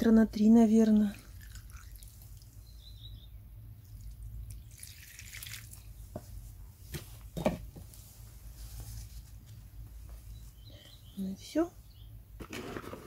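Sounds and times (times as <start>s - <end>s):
water dripping: 0.8s - 2.6s, 3.8s - 5.9s.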